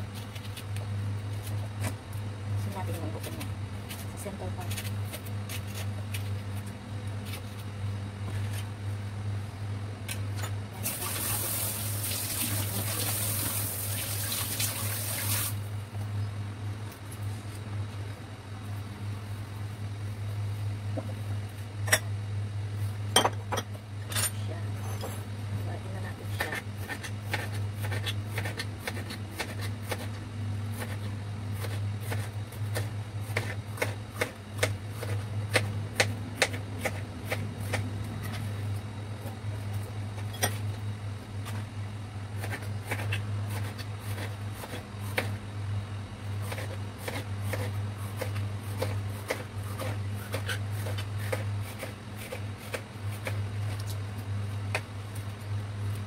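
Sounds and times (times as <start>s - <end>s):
steady low hum: 0.0s - 56.0s.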